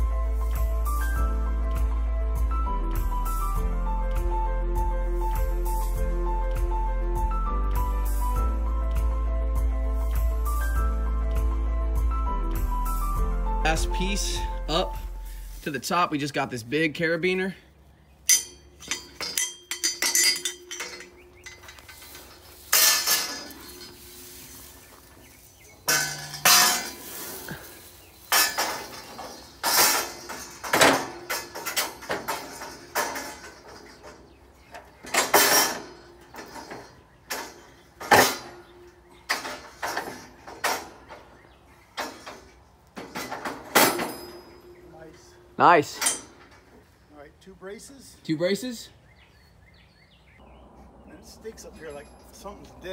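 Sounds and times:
scaffolding pipes clanking: 18.3s - 47.0s.

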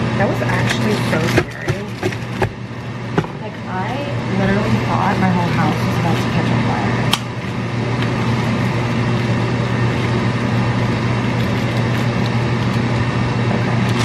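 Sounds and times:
electric fan whooshing and humming: 0.0s - 14.0s
plastic bag crinkling: 7.3s - 13.1s.

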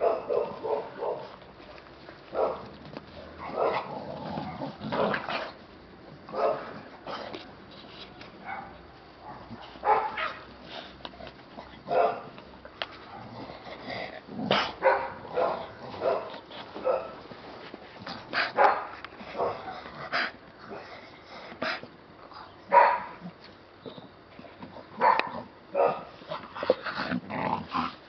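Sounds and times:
dogs barking and yipping: 0.0s - 1.4s, 2.3s - 4.0s, 8.4s - 10.5s, 11.9s - 12.4s, 14.6s - 17.2s, 18.4s - 20.8s, 22.7s - 23.2s, 24.8s - 26.7s.

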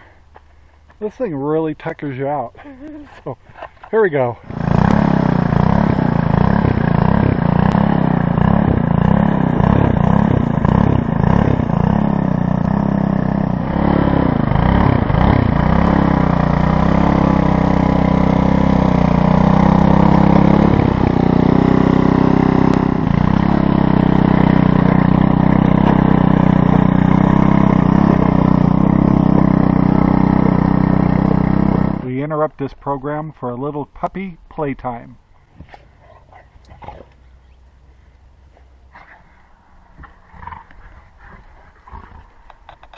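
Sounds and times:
tines churning dry soil: 3.0s - 32.1s
tiller engine running under load: 4.4s - 32.1s.

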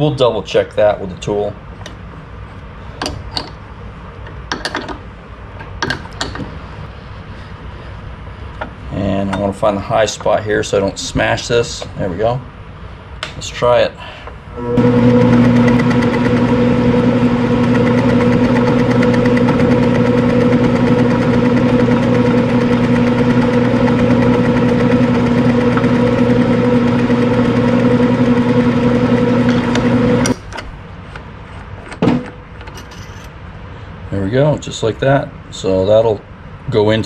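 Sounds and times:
metal lathe motor humming: 14.6s - 30.5s.

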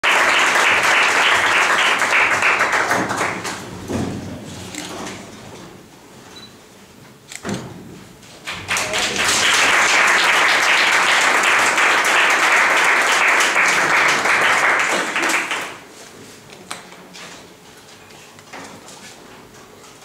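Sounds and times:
audience applauding: 0.0s - 3.6s, 8.5s - 15.9s.

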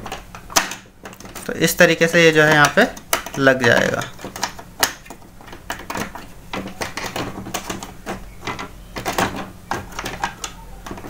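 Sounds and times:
hard plastic clicks and knocks: 0.0s - 1.5s, 2.4s - 11.0s.

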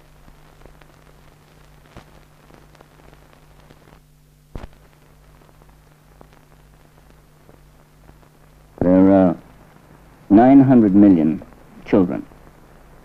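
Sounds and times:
crackle: 0.0s - 13.0s
steady hiss: 0.0s - 13.0s
sharp pop: 4.5s - 4.9s.

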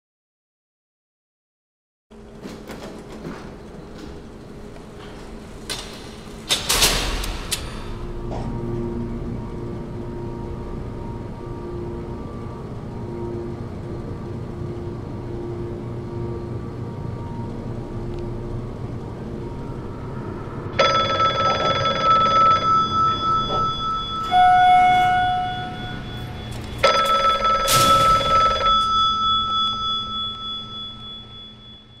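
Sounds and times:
low steady hum: 2.1s - 32.0s
steady tone: 8.0s - 32.0s
bell ringing trilled: 20.8s - 32.0s.

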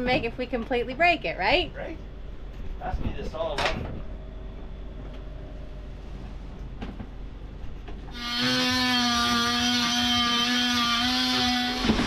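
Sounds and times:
cordless power tool whining: 8.1s - 12.0s.

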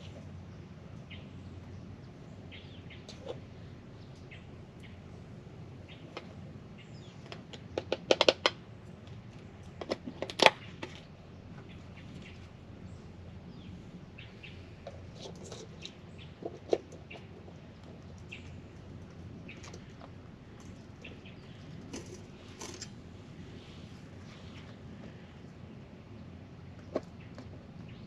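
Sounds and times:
faint bird chirps: 0.0s - 5.2s, 10.6s - 26.2s
camp cookware clicking and knocking: 7.2s - 8.6s.

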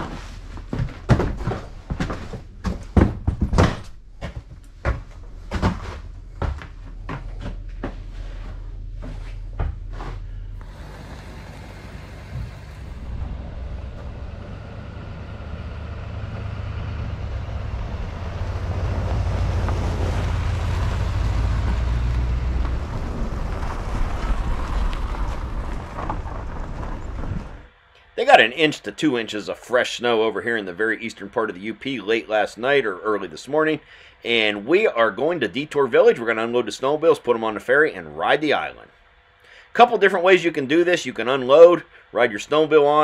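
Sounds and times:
sharp irregular knocks and thumps: 0.0s - 8.0s
vehicle engine rumble: 0.0s - 27.8s
road noise: 0.0s - 27.9s.

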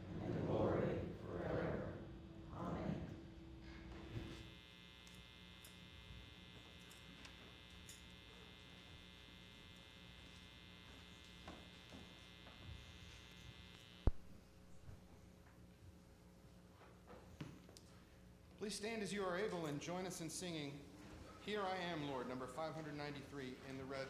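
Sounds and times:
electrical buzz: 0.0s - 15.3s
low hum: 0.0s - 15.4s.

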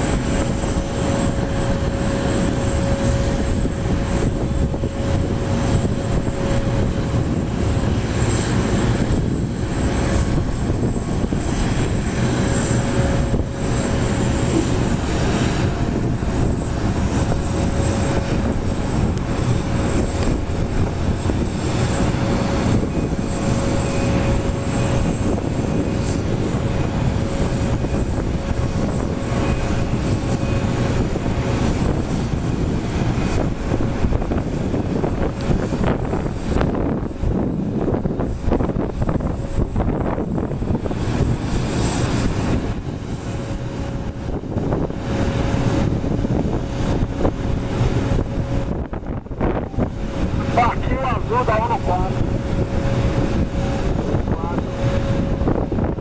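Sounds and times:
jet airliner whining: 0.0s - 56.0s.

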